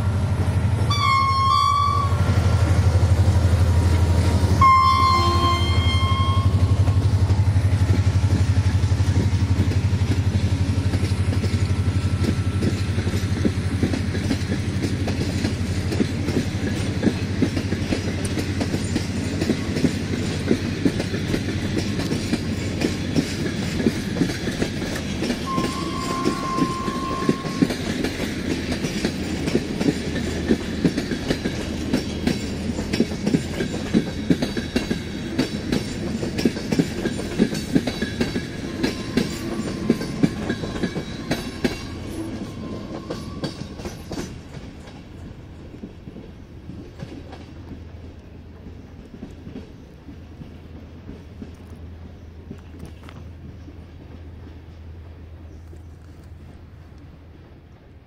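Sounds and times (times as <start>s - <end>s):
train wheels clattering: 0.0s - 56.7s
low train rumble: 0.0s - 58.0s
steady high tone: 4.6s - 7.2s, 25.5s - 27.9s.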